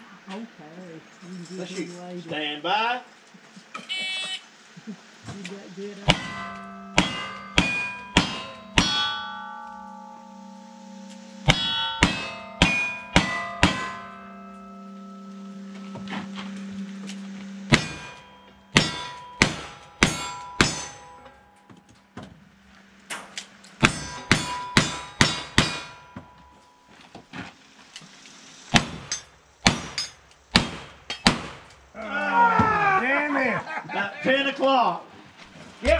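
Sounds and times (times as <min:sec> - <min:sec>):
steel targets ringing: 0:06.0 - 0:27.8, 0:28.4 - 0:32.0
pistol shots: 0:28.7 - 0:31.7.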